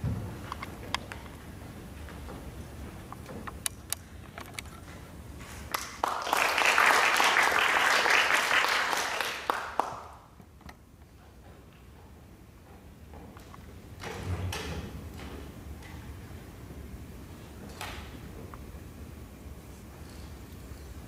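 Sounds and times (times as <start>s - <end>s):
audience applauding: 5.7s - 10.3s.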